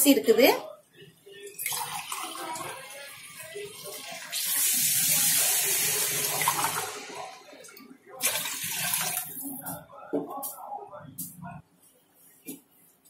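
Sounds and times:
water pouring into a pot: 1.4 - 7.6, 8.2 - 9.4.

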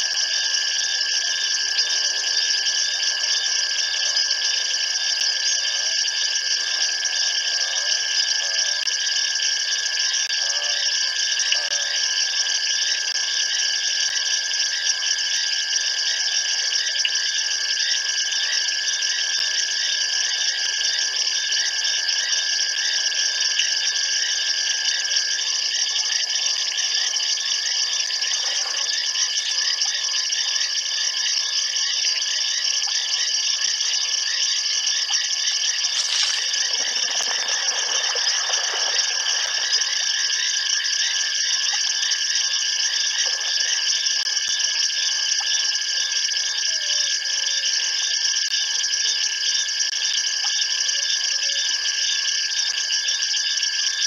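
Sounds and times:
insects trilling: 0.0 - 54.0
whistle-like tone: 34.4 - 47.6.

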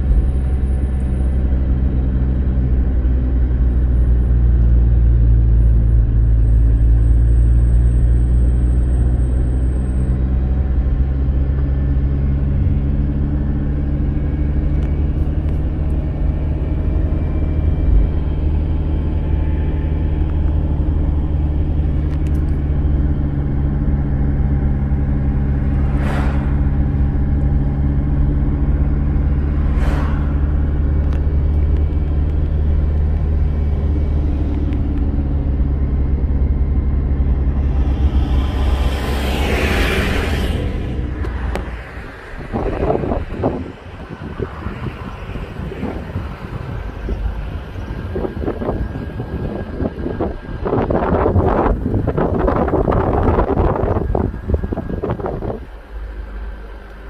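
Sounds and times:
car engine and road noise: 0.0 - 57.0
brief hissing swishes: 25.9 - 26.8, 29.6 - 30.6.

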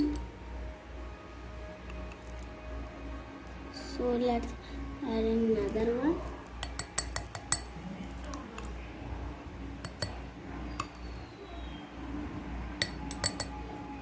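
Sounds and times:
low steady hum: 0.0 - 14.0
utensil clinking against glass bowls: 6.6 - 8.8, 9.8 - 11.2, 12.8 - 13.8.

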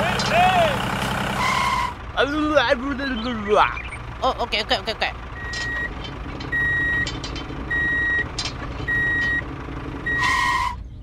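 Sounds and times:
low engine rumble: 0.0 - 11.0
reversing alarm beeps: 5.4 - 7.1, 7.7 - 8.3, 8.9 - 9.4, 10.0 - 10.7.

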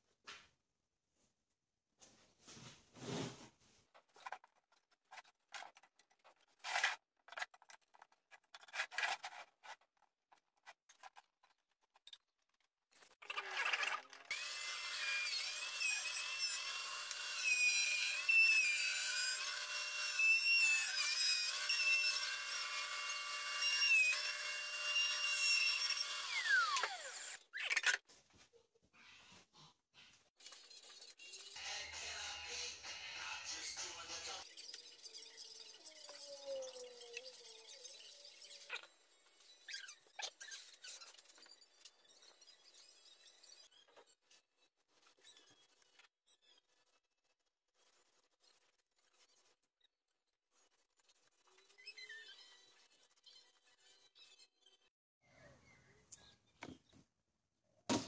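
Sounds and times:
power tool whining: 14.3 - 27.4.

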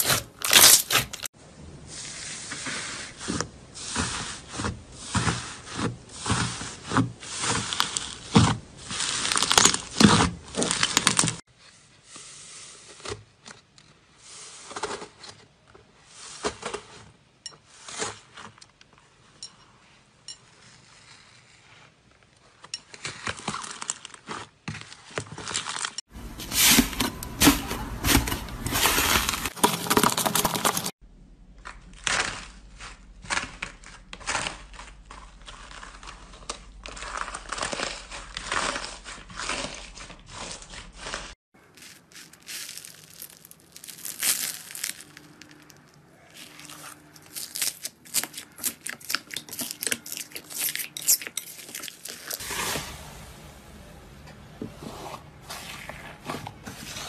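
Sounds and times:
slime crackling and popping: 7.6 - 11.4, 31.6 - 52.4.

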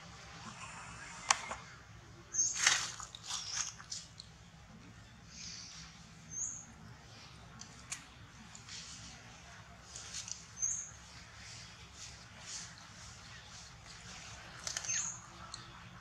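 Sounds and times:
dry leaves crackling and rustling: 2.4 - 4.1.

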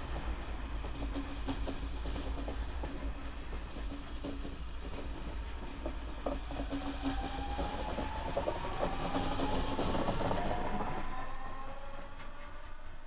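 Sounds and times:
wheels clicking over rail joints: 0.8 - 11.0.

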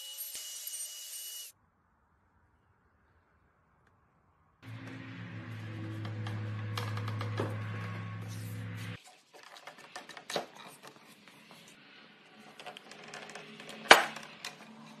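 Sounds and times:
steady hum: 4.6 - 9.0.

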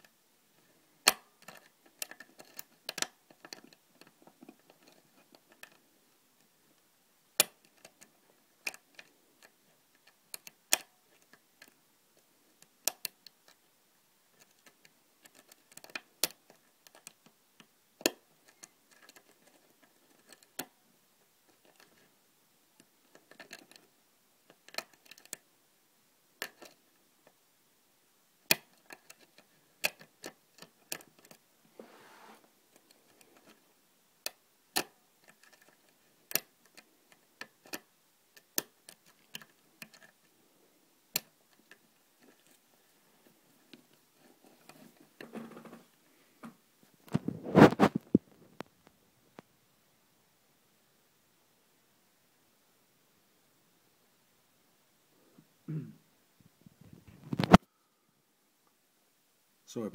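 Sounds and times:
soft scraping in lock: 31.7 - 32.5.

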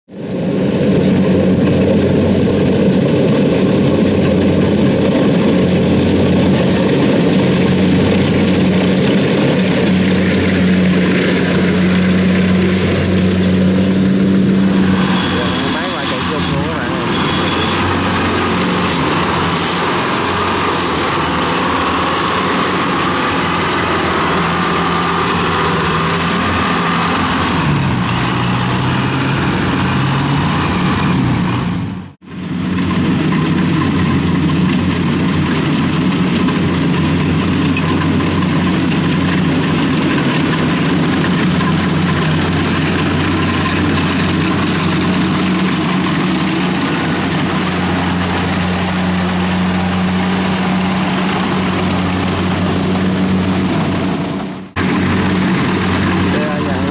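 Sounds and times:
combine harvester diesel engine: 0.1 - 56.9
tracked carrier engine: 0.1 - 56.9.

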